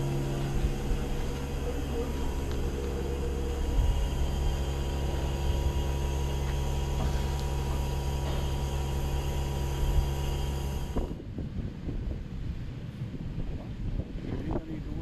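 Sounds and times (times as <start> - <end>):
machine humming: 0.0 - 11.2
rough noisy rumble: 0.0 - 11.6.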